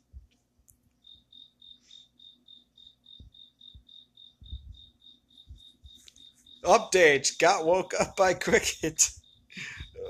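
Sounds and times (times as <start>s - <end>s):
cricket chirping: 0.8s - 10.0s
dull low thumps: 3.2s - 6.0s.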